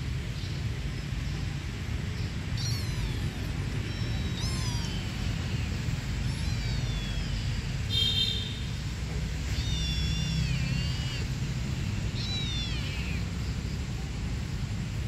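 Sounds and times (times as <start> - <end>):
kitten meowing: 2.2 - 13.5.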